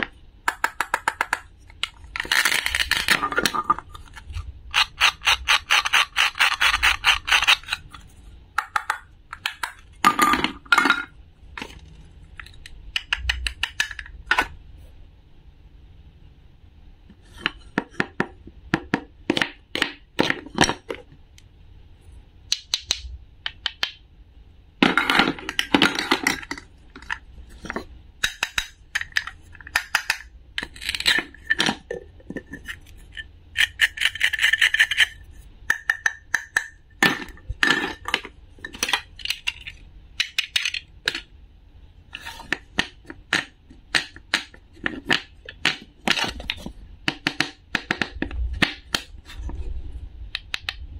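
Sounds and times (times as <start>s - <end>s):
plastic toy pieces clicking: 0.5s - 3.5s, 4.7s - 7.8s
toy knife scraping wooden board: 4.7s - 7.8s.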